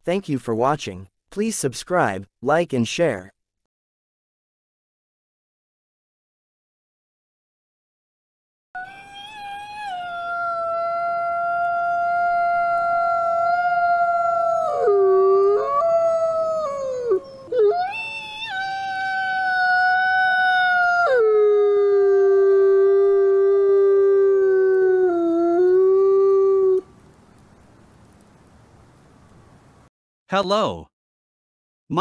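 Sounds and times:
wolf howling: 8.8s - 27.0s.

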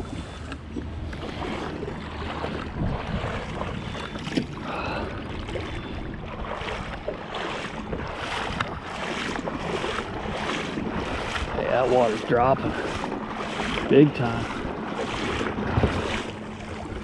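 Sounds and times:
water lapping around kayak: 0.0s - 17.0s
wind buffeting microphone: 0.0s - 17.0s.

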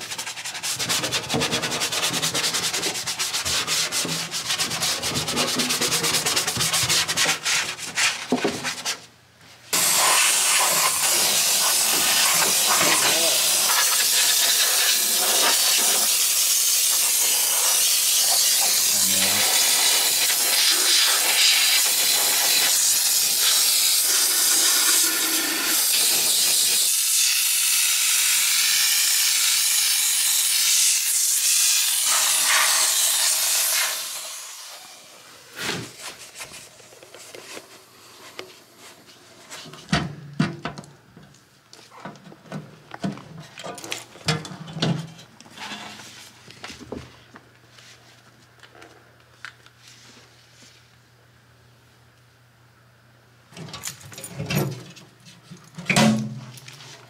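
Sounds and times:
steam cleaner hissing: 9.8s - 35.9s.

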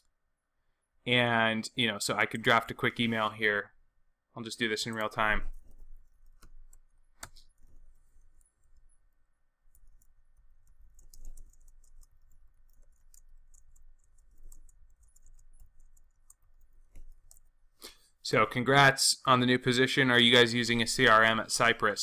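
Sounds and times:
faint keyboard typing: 4.7s - 18.2s.

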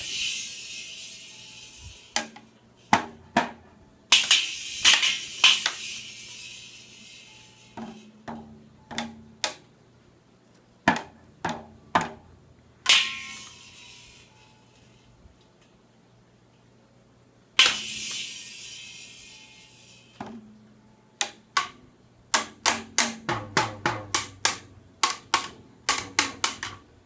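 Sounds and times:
toy cymbal crashes: 0.0s - 2.2s, 4.1s - 8.1s, 12.9s - 14.6s, 17.6s - 20.2s
toy drum hits: 2.2s - 6.2s, 7.8s - 9.6s, 12.9s - 13.6s, 17.6s - 18.6s, 21.2s - 26.8s.

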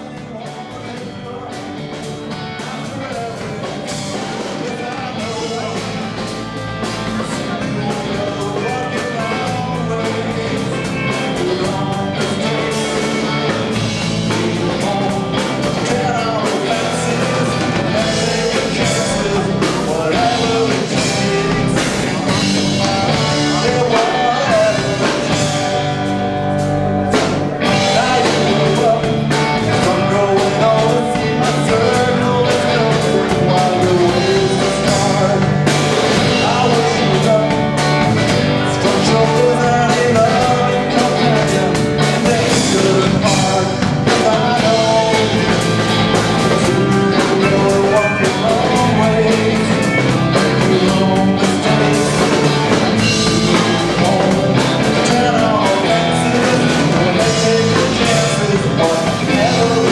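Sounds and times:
bass guitar: 0.0s - 59.9s
drum kit: 0.0s - 59.9s
electric guitar: 0.0s - 59.9s.

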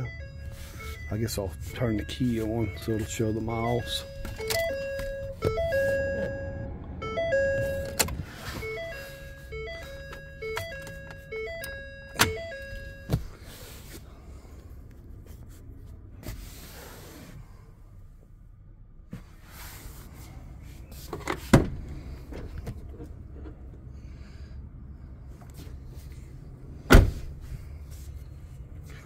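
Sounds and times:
dashboard warning chime: 0.0s - 13.5s.

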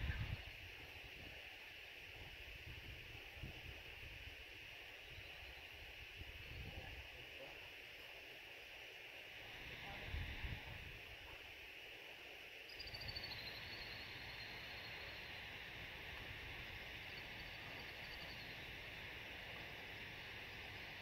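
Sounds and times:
wind rumble on microphone: 0.0s - 1.4s, 2.1s - 4.4s, 5.9s - 7.2s, 9.7s - 11.3s
steady high hiss: 0.0s - 21.0s.

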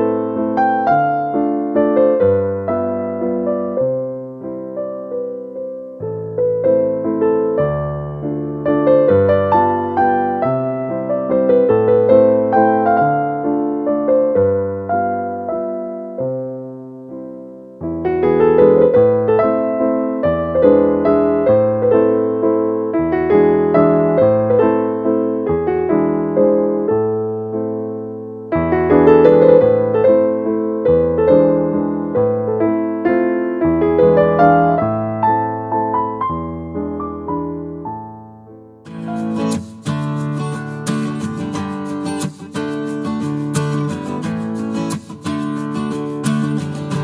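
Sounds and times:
gentle piano piece: 0.0s - 47.0s.

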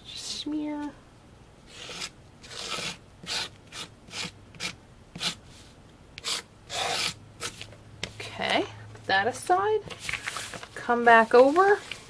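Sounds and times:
palette knife scraping paste: 1.7s - 7.7s.

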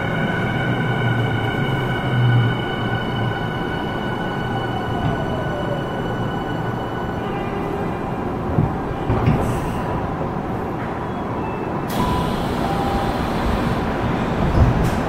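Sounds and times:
subway train interior noise: 0.0s - 15.0s
train doors hissing open: 11.8s - 14.0s.

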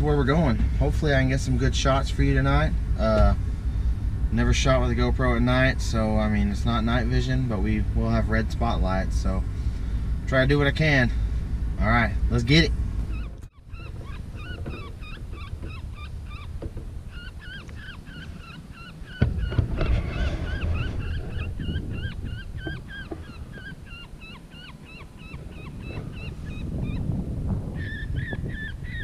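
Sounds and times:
steady low rumble: 0.0s - 29.0s
squeaky high calls: 13.1s - 27.0s.

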